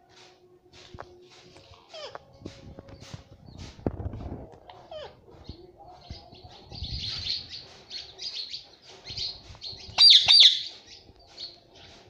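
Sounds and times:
parakeet chattering: 9.9s - 10.7s
sharp parakeet calls: 9.9s - 11.0s.

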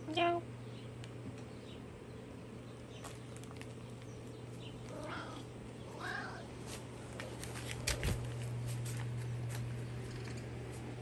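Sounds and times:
low steady hum: 0.0s - 11.0s
cat meowing: 4.9s - 6.5s.

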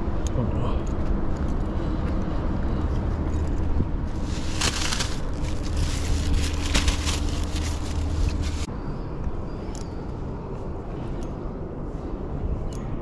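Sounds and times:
steady low rumble: 0.0s - 13.0s
plastic bag crinkling: 4.1s - 8.7s.

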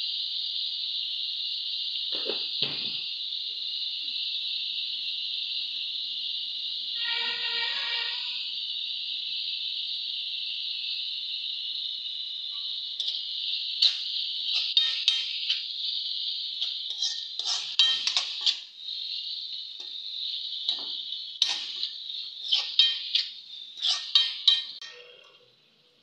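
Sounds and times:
steady high hiss: 0.0s - 26.0s
spoon scraping a metal wok: 13.0s - 15.7s, 16.6s - 18.7s, 20.7s - 25.1s.

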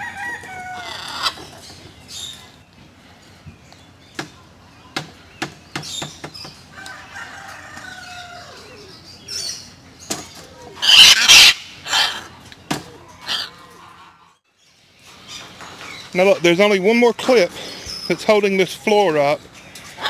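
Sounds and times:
macaws squawking: 0.2s - 2.4s, 10.6s - 14.4s.

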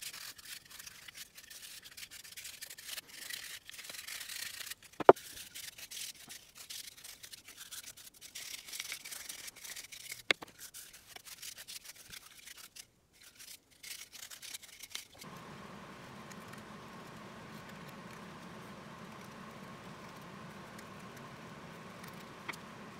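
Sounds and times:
steady even hum: 15.2s - 22.9s.

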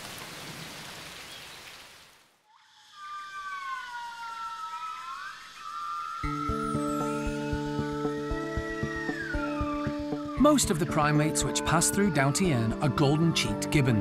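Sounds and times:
wavering whistle-like tones: 2.5s - 13.2s
music with steady beat: 6.3s - 12.1s.

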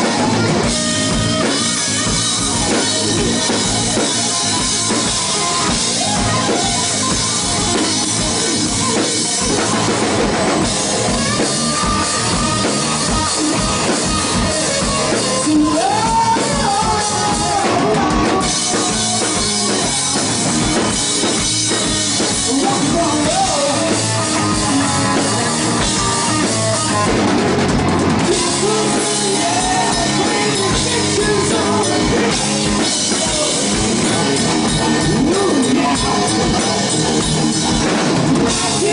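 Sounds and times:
person singing: 0.0s - 37.2s, 37.8s - 38.9s
drum kit: 0.0s - 38.9s
electric guitar lead: 0.0s - 38.9s.

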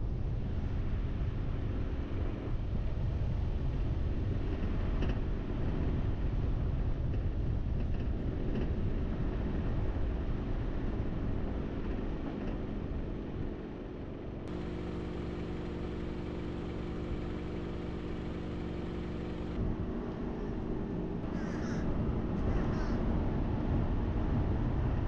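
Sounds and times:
steady low rumbling noise: 0.0s - 25.0s.

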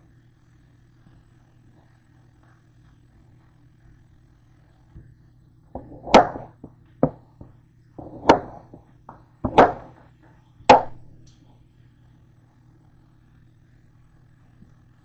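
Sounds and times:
knife chopping on cutting board: 5.8s - 7.2s, 8.0s - 8.8s, 9.4s - 10.0s, 10.7s - 11.0s.

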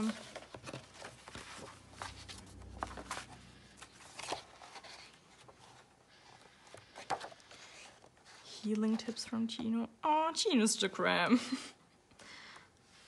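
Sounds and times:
paper rustling: 0.0s - 9.2s.

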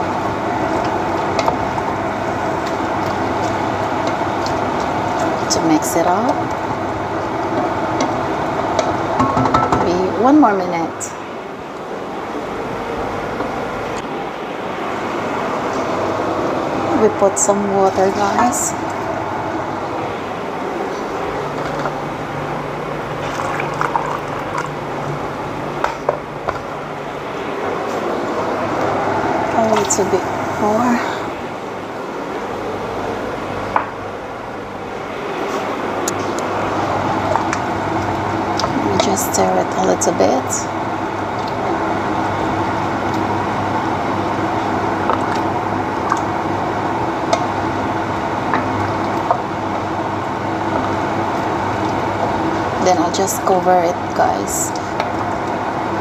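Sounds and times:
stew bubbling in a pot: 0.0s - 9.9s, 21.0s - 26.6s, 36.1s - 54.2s
steady mechanical hum: 0.0s - 56.0s
wooden spoon stirring stew: 0.4s - 9.4s
spoon knocking against pot: 9.2s - 9.8s.

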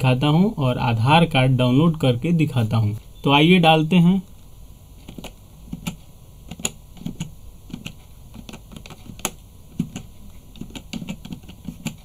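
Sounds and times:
keyboard keys clicking: 5.0s - 12.0s.

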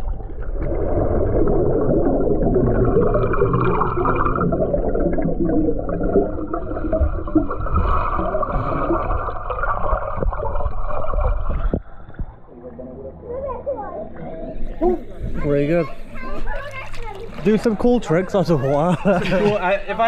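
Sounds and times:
bubbles: 0.0s - 15.3s
muffled underwater water rushing: 0.0s - 18.4s.

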